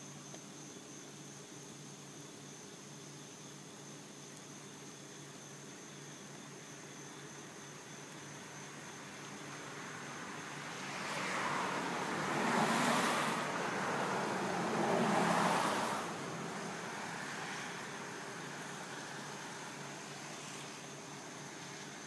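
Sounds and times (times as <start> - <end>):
road traffic passing: 9.0 - 22.0.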